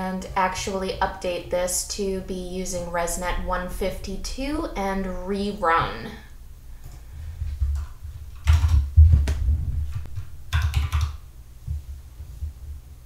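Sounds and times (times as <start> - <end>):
typing on computer keyboard: 7.7 - 9.1, 10.5 - 11.2.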